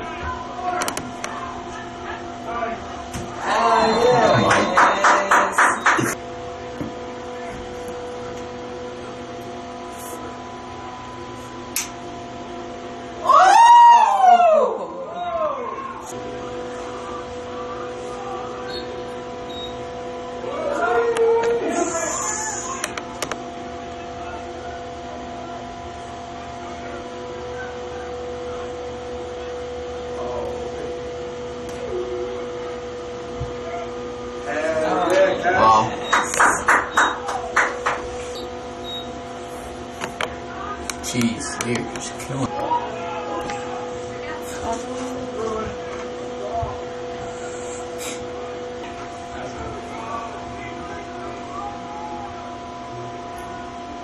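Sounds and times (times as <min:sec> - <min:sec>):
steady tonal hum: 0:00.0 - 0:54.0.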